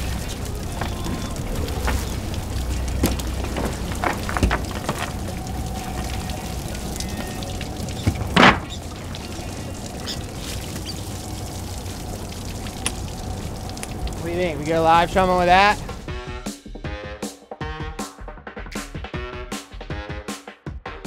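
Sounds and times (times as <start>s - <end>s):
water and baitfish splashing: 0.0s - 16.2s.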